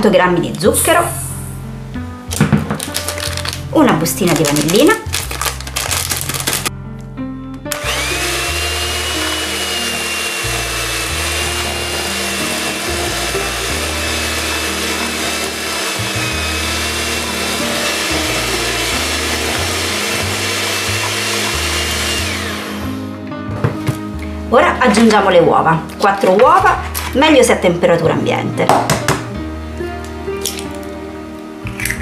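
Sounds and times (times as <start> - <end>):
hand mixer motor whine: 7.7 - 23.1.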